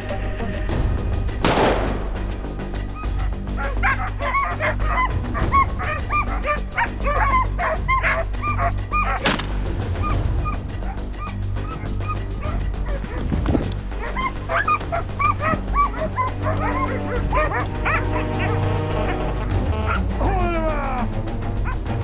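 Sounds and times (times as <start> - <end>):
shotgun shot: 1.4 - 2.2, 9.2 - 9.6
sharp crack: 1.4 - 2.3, 9.2 - 9.8
hounds baying and yelping: 2.8 - 20.0, 21.5 - 22.0.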